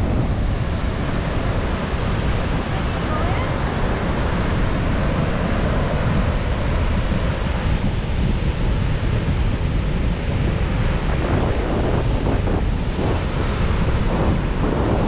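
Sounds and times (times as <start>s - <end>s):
surf washing onto beach: 0.0s - 15.0s
wind buffeting microphone: 0.0s - 15.0s.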